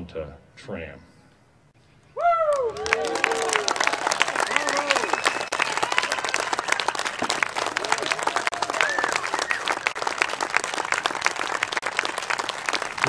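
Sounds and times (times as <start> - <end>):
voices calling out and cheering: 2.2 - 9.8
crowd applauding: 2.2 - 13.0.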